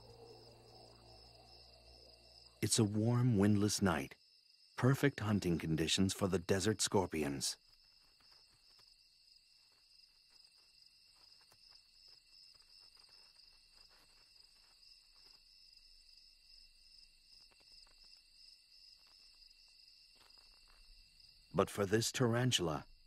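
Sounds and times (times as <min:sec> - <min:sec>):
crickets trilling: 0:00.0 - 0:23.0
faint ticks and scratches: 0:06.9 - 0:21.6.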